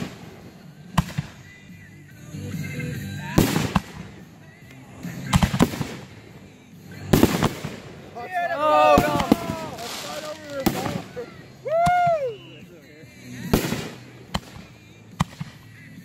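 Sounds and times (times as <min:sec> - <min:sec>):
fireworks bangs: 0:00.0 - 0:01.6, 0:03.0 - 0:04.3, 0:05.1 - 0:12.6, 0:13.3 - 0:15.8
fireworks crackling: 0:00.0 - 0:16.0.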